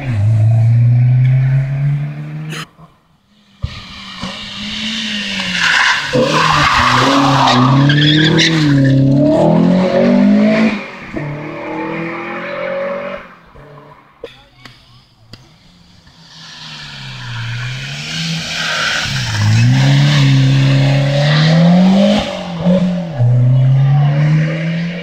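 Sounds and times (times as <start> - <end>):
rally car engine revving: 0.0 - 14.2, 15.2 - 25.0
tyres squealing: 3.7 - 9.1.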